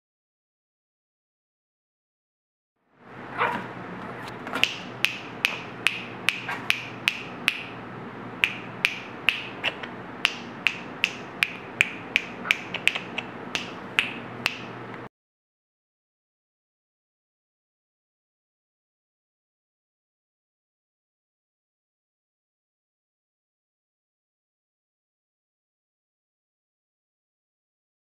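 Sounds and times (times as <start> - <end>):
puppy yapping: 3.3 - 4.3.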